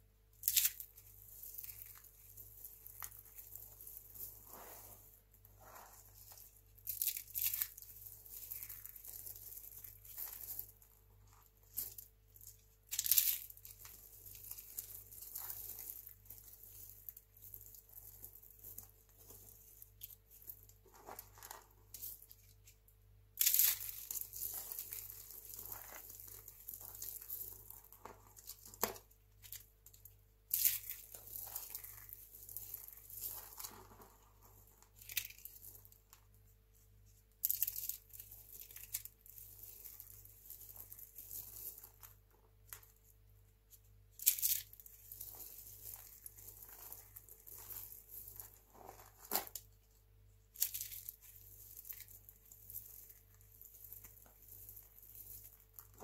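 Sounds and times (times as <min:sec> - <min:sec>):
dry soap crunching in a hand: 0:00.4 - 0:36.2, 0:37.4 - 0:43.1, 0:43.7 - 0:49.8, 0:50.5 - 0:56.0.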